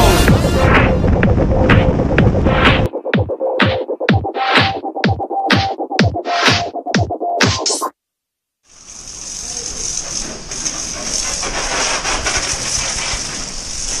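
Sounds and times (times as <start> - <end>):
music with a beat: 0.0 - 7.9
pressure washer jet hissing: 8.7 - 14.0.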